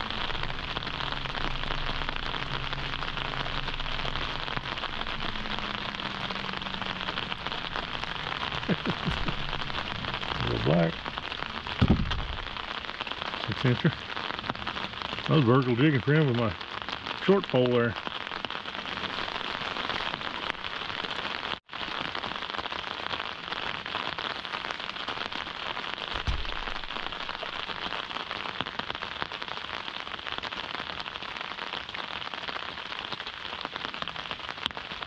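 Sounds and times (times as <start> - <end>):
rain falling: 0.0 - 35.0
low thud: 11.8 - 12.6, 26.1 - 27.0.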